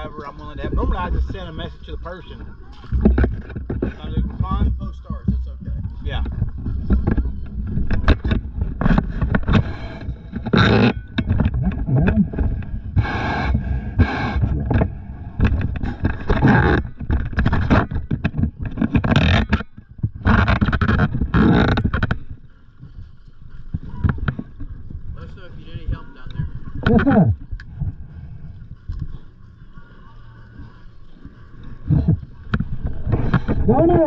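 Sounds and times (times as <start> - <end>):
gear rubbing against camera: 2.3 - 22.4, 25.7 - 29.1, 31.7 - 34.0.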